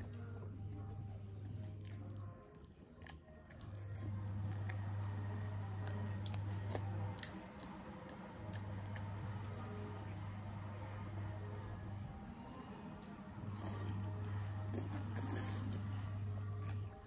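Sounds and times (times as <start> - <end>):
chewing with wet mouth sounds: 0.0 - 17.0
low steady hum: 0.0 - 17.0.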